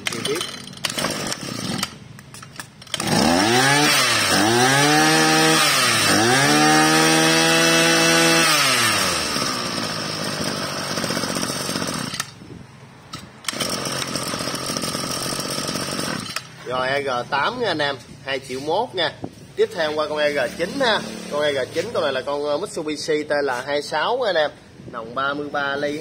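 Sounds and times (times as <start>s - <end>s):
brush cutter engine revving: 0.0s - 12.4s, 13.2s - 16.9s.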